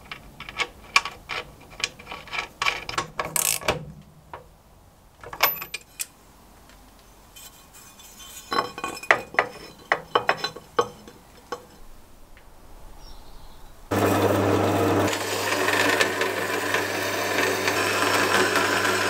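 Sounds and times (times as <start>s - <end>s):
metal parts clinking and knocking: 5.2s - 6.2s, 7.3s - 12.0s.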